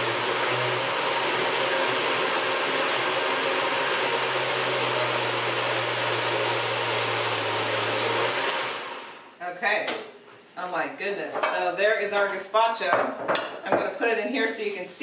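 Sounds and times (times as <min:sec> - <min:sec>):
blender motor winding down: 0:00.0 - 0:09.2
blender running: 0:00.0 - 0:09.3.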